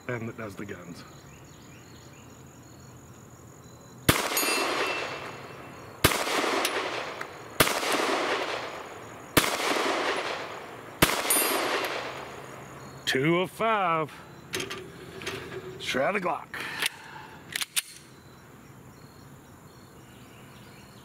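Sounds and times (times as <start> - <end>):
crickets chirping: 0.0 - 21.0
pistol shots echoing: 4.1 - 12.8.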